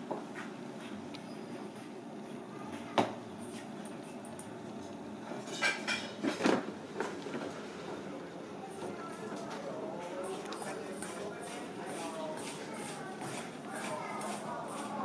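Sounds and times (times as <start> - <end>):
steady background hum: 0.0 - 15.0
kitchen clinks and knocks: 5.4 - 6.6.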